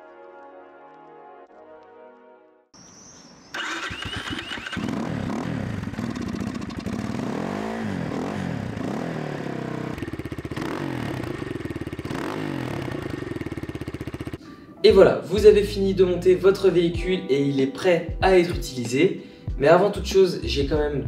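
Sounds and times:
dirt bike engine revving and idling: 3.6s - 14.4s.

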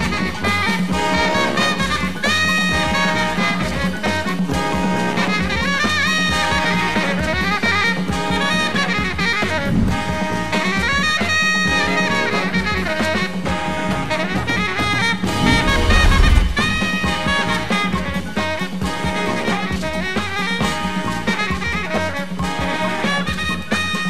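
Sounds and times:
upbeat swing jazz music: 17.6s - 24.0s.

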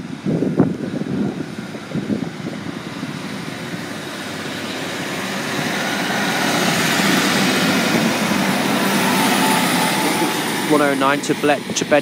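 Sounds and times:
diesel train engine: 0.0s - 12.0s
train wheels on rails: 0.1s - 12.0s.

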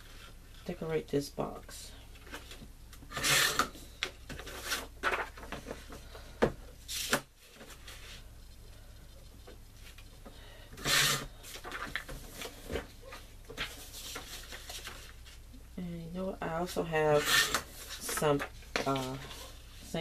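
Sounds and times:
paper rustling and scraping: 2.2s - 6.0s, 6.9s - 8.3s, 10.8s - 15.4s, 17.1s - 20.0s.

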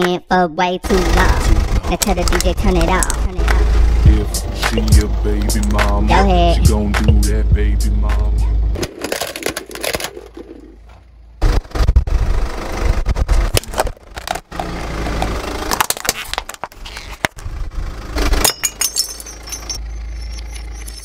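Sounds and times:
tyre crushing brittle objects: 8.8s - 11.0s, 13.5s - 17.4s
clinking and rattling: 8.8s - 11.1s, 18.2s - 21.0s.

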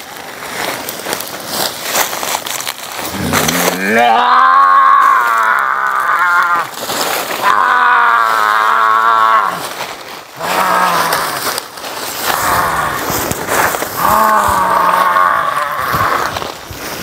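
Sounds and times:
man wailing: 3.1s - 6.7s, 7.4s - 9.7s.

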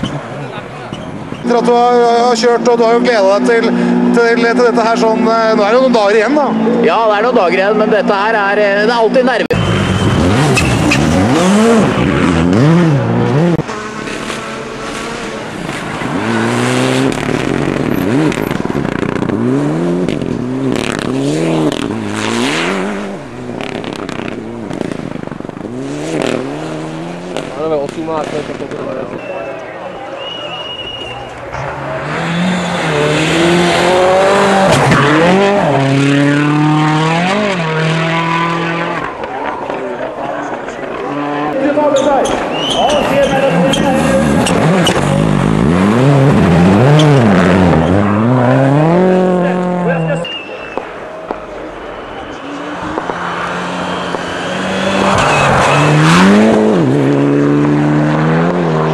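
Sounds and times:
rally car engines revving: 0.0s - 58.9s
sharp cracks: 50.6s - 56.8s.

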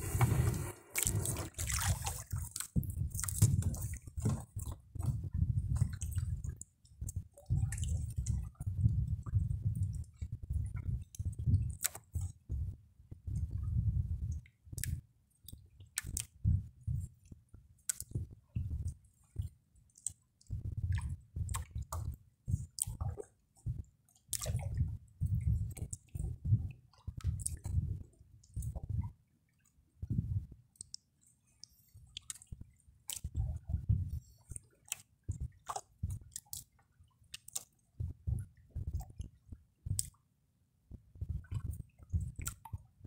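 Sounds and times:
net knocking on wooden boat: 3.6s - 4.6s.

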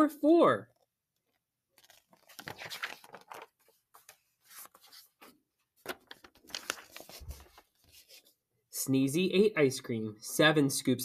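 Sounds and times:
book pages rustling: 0.8s - 8.4s.

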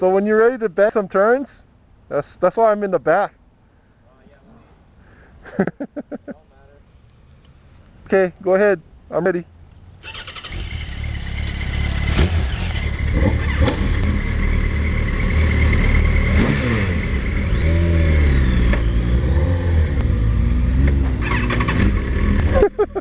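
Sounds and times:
motorcycle engines revving: 10.0s - 23.0s.

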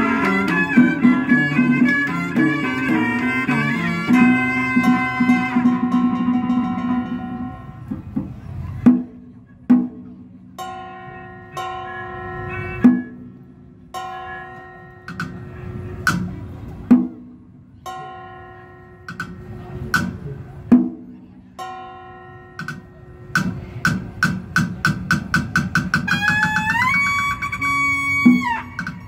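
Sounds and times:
long wind instrument note: 0.0s - 6.0s
held pitched notes: 0.0s - 8.0s, 8.8s - 24.6s, 25.8s - 29.0s
sharp drum strokes: 0.0s - 10.1s.

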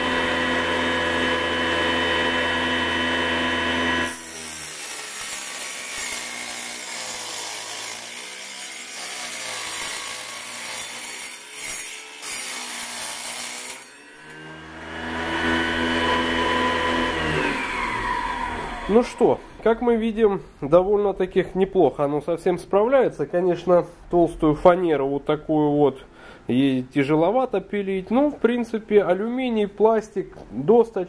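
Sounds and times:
saw blade whine: 0.0s - 19.6s
saw grinding through metal: 0.0s - 19.7s.

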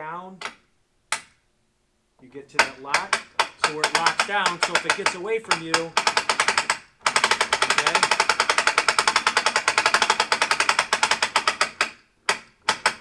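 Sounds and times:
winch ratchet clicking rapidly: 2.6s - 13.0s.

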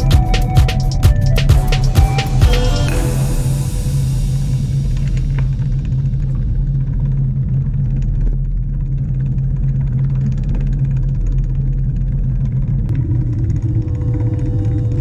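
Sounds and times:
long held music tones: 0.0s - 7.6s, 12.9s - 15.0s
low rumbling bass drone: 0.0s - 15.0s.

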